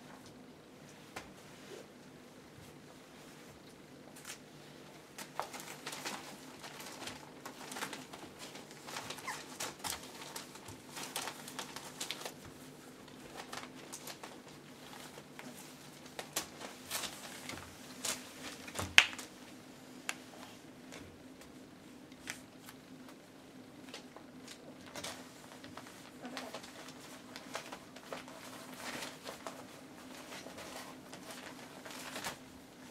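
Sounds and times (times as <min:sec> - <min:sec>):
puppies scrabbling on newspaper: 0:03.2 - 0:19.5, 0:20.9 - 0:32.9.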